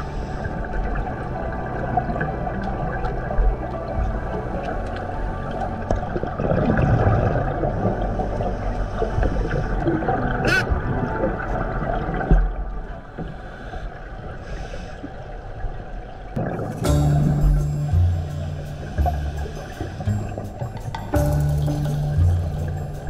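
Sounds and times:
diver's bubbles gurgling: 5.7s - 8.7s, 16.4s - 22.8s.

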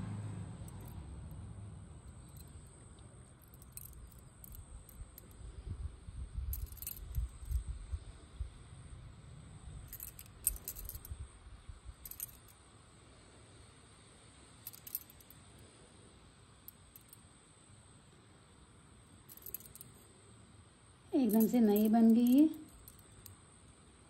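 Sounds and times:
metal bangles clinking: 0.6s - 1.4s, 2.0s - 5.4s, 6.4s - 7.7s, 9.8s - 11.2s, 11.9s - 12.6s, 14.6s - 15.5s, 16.6s - 17.2s, 19.2s - 20.1s, 21.2s - 23.5s.

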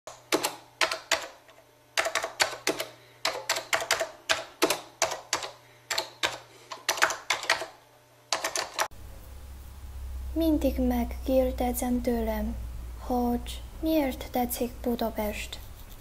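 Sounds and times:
keyboard keystrokes clicking: 2.0s - 7.7s, 8.3s - 8.9s.

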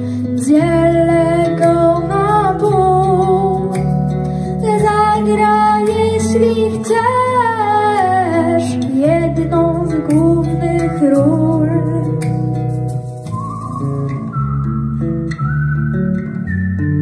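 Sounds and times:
boy singing into microphone: 0.0s - 3.9s, 4.6s - 12.4s
backing track with guitar and bass: 0.0s - 17.0s.

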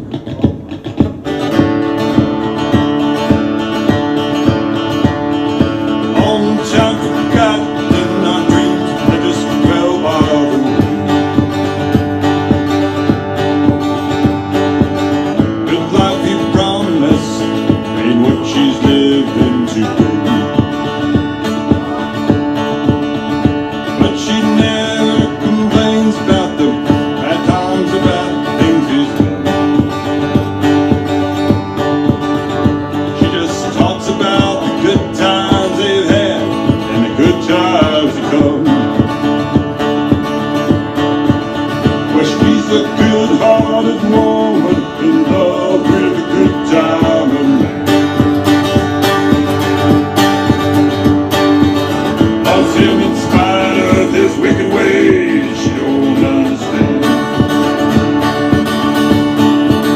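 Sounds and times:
country music on guitar: 0.0s - 59.9s
steady beat: 0.0s - 59.9s
man singing: 5.6s - 11.8s, 15.4s - 21.2s, 23.8s - 30.0s, 33.0s - 39.3s, 41.8s - 48.4s, 52.2s - 58.0s.

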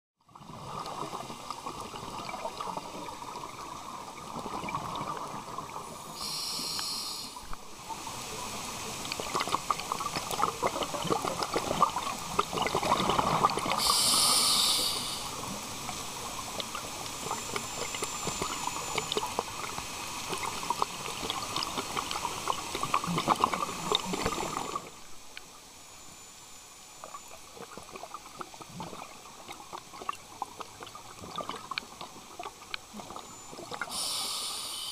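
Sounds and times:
fine underwater crackling: 0.3s - 34.8s
diver breathing through regulator: 6.1s - 7.5s, 13.7s - 15.4s, 33.8s - 34.9s.

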